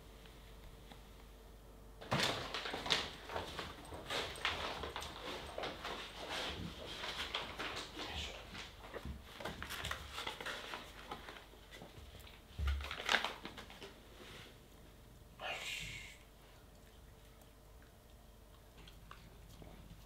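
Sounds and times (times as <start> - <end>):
package rustling: 2.0 - 7.9, 9.4 - 14.0
dog paws pattering on floor: 2.0 - 14.4.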